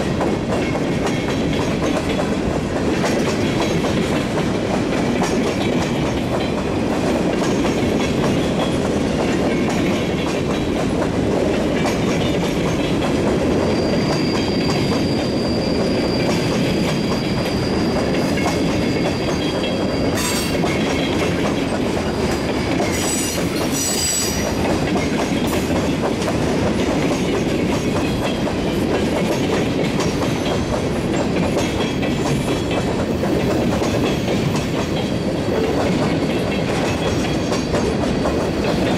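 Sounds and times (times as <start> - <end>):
train wheels clattering over rail joints: 0.0 - 38.9
high wheel squeal: 13.5 - 20.6, 22.0 - 24.6.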